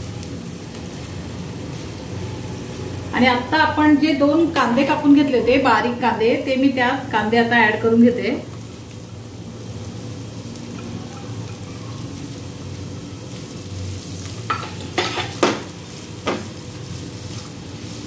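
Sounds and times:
onions sizzling in oil: 0.0s - 18.0s
spatula scraping and tapping pan: 14.5s - 16.5s.

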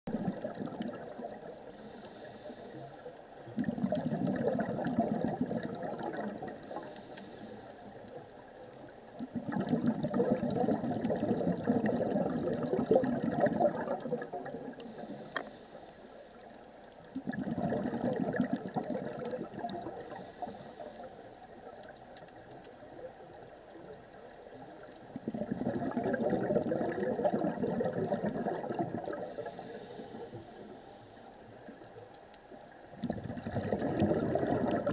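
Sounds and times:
exhaled bubbles underwater: 0.1s - 15.7s, 17.0s - 31.0s, 32.7s - 34.9s
hissing regulator inhalations: 1.6s - 3.2s, 6.3s - 8.3s, 14.7s - 16.7s, 19.9s - 21.6s, 29.0s - 31.7s.

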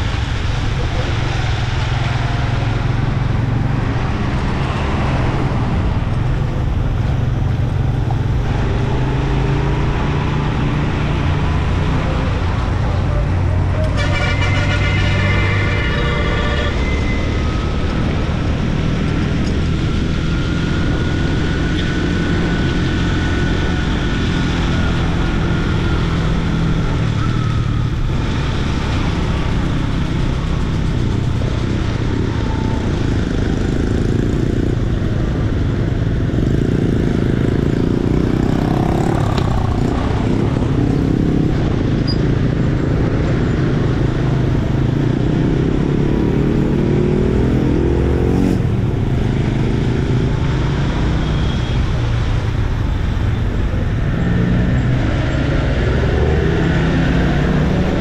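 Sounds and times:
motorcycle riding: 0.0s - 58.0s
road and wind noise: 0.0s - 58.0s
vehicle horn: 13.7s - 17.6s.

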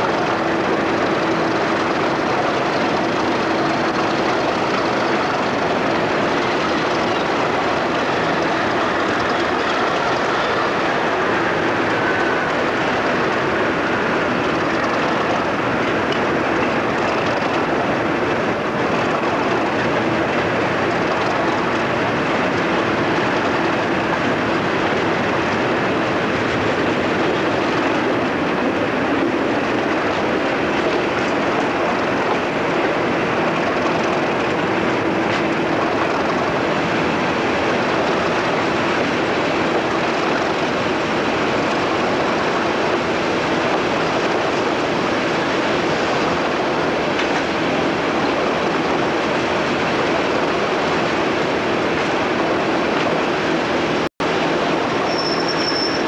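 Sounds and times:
rushing air: 0.0s - 55.1s
diesel locomotive engine drone: 0.0s - 56.0s
rail noise from wheels: 0.0s - 56.0s.

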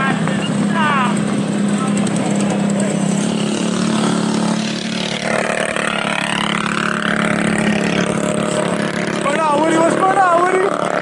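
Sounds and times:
mini bike engine revving: 0.0s - 11.0s
mini bike engines running: 0.0s - 11.0s.

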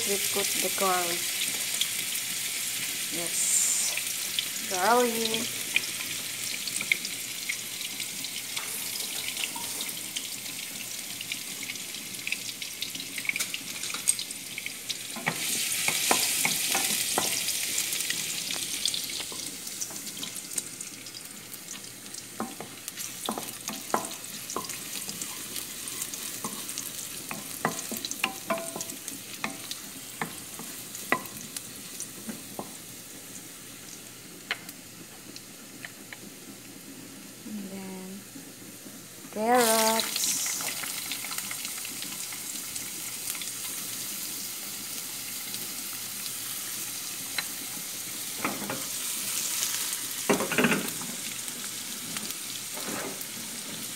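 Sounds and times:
garlic sizzling in hot oil: 0.0s - 53.9s
wooden spatula scraping a pan: 52.7s - 53.9s.

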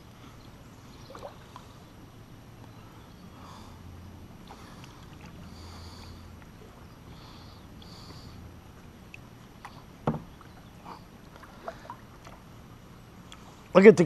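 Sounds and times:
paddle swishing in water: 4.4s - 12.6s.

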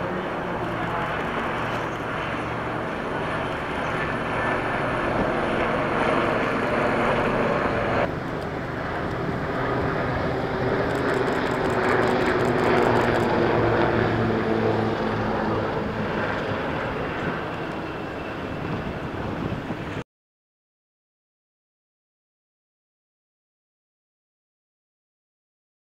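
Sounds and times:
helicopter turbine engines and rotors: 0.0s - 20.0s.

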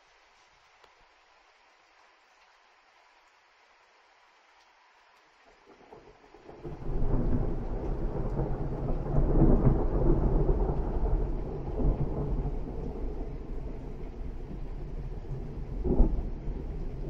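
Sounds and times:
thunder rumbling: 5.6s - 17.0s.

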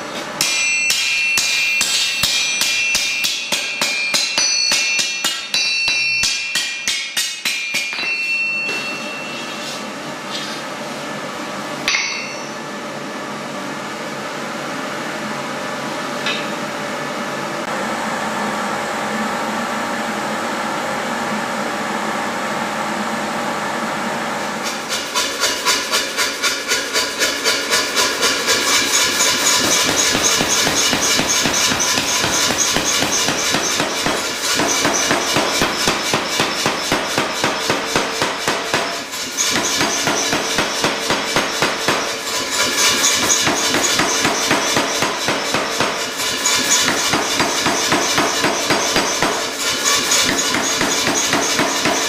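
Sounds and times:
mechanical hum and hiss: 0.0s - 52.0s
hammer striking iron on anvil: 0.1s - 9.8s, 11.8s - 12.6s, 16.2s - 16.6s, 24.6s - 52.0s.

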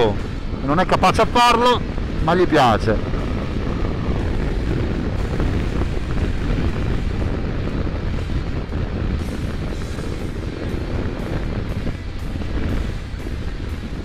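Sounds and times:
wind rush: 0.0s - 14.0s
motorcycle engine: 3.0s - 14.0s.

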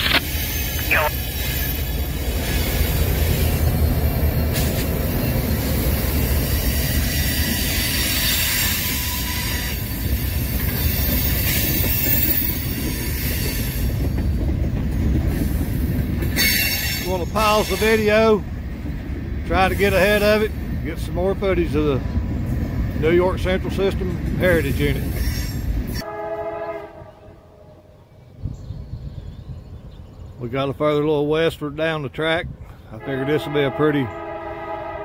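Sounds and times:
freight train wheels rumbling: 0.0s - 35.0s.

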